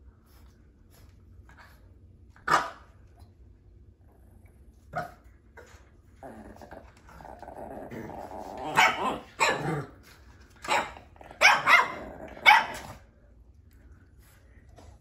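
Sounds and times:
small dogs growling: 4.0 - 10.3, 10.9 - 13.1
small dogs barking sharply: 10.6 - 13.0.

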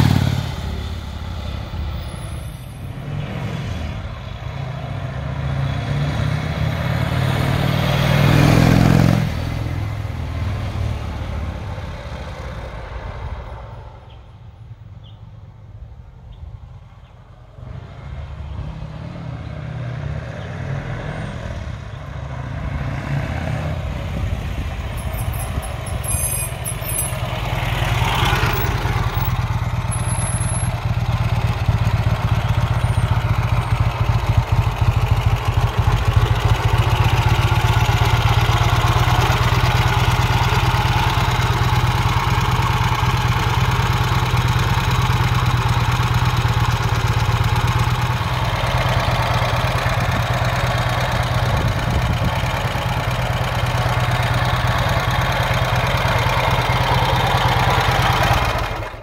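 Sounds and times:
motorcycle engine running: 0.0 - 2.1, 23.9 - 59.0.

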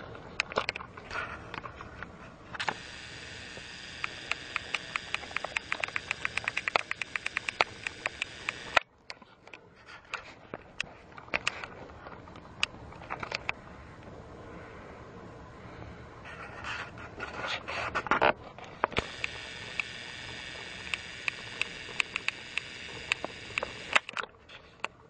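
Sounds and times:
small electric motor whirring: 2.6 - 8.8, 18.9 - 24.2
ticking: 2.6 - 8.8, 18.8 - 25.0.

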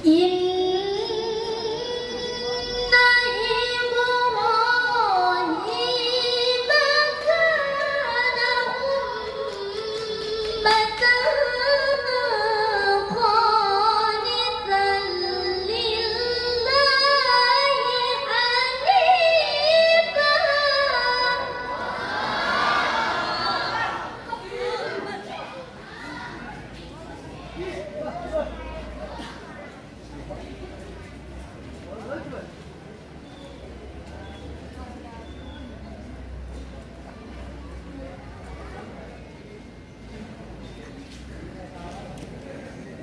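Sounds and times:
woman reciting melodically: 0.0 - 26.0.

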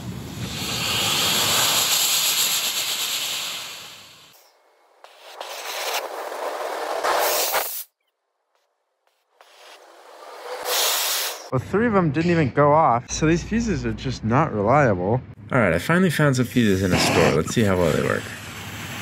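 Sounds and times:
rocket motors hissing: 0.3 - 4.5, 9.4 - 11.5, 16.6 - 19.0.

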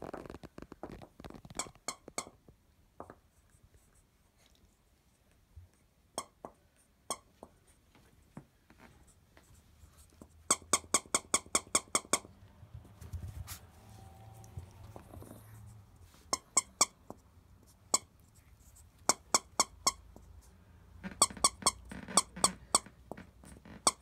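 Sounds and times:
dog toy squeaking: 1.3 - 2.4, 7.1 - 7.3, 10.5 - 12.3, 16.2 - 17.2, 17.8 - 18.2, 19.0 - 20.2, 21.0 - 24.0.

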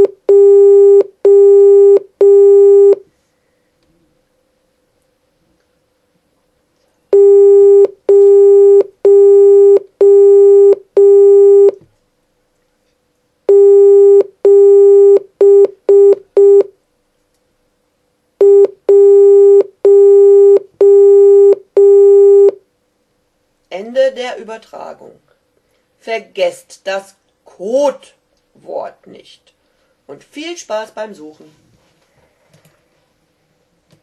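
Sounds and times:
morse code beeps: 0.0 - 3.0, 7.2 - 11.8, 13.5 - 16.7, 18.4 - 22.6.

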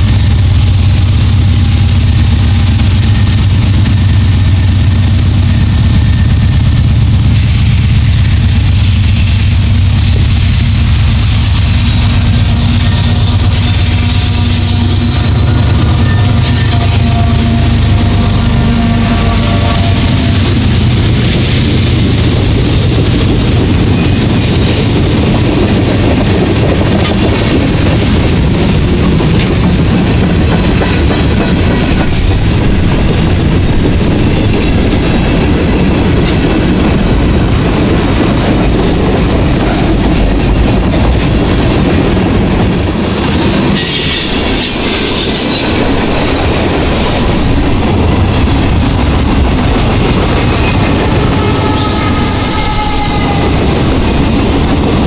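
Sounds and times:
train wheels rolling on rails: 0.0 - 55.0
high-pitched wheel squeal: 10.3 - 20.3, 51.3 - 53.9.

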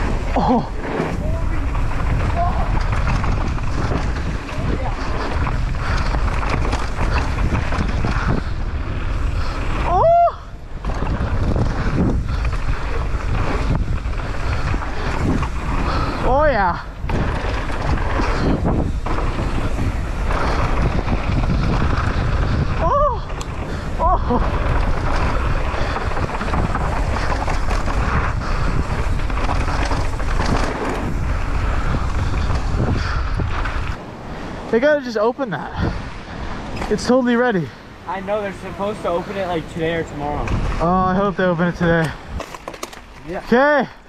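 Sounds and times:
mountain bike rumbling on dirt: 0.0 - 44.0
wind buffeting microphone: 0.0 - 44.0
person yelling: 9.8 - 10.5, 22.8 - 23.3.

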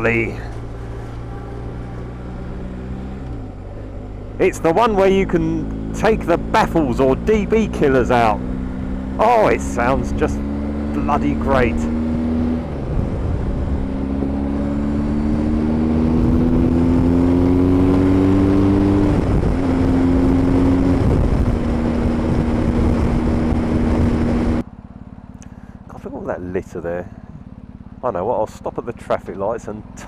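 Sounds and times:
motorcycle engine at speed: 0.0 - 30.0
wind rush on microphone: 11.8 - 17.1, 17.9 - 24.6.

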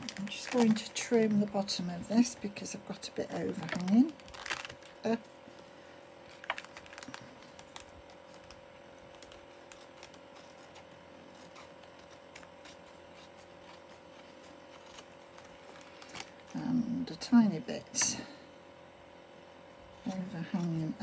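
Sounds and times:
paper rustling: 3.3 - 16.6
scissors snipping paper: 7.7 - 16.4.

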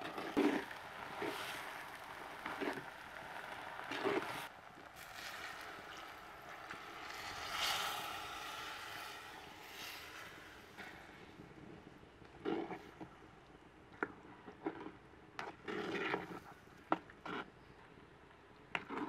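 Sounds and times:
lentils sizzling in a pot: 0.0 - 11.4
liquid pouring hiss: 0.0 - 11.5.

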